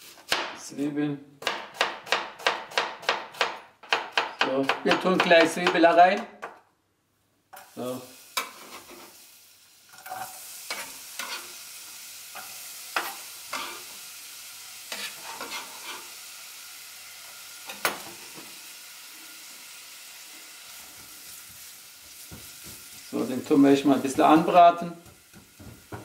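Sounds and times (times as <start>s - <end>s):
onion sizzling in oil: 0.0s - 0.4s, 7.5s - 26.0s
knife and spatula scraping pan: 8.4s - 9.1s, 10.0s - 11.6s, 12.4s - 13.9s, 14.9s - 16.2s.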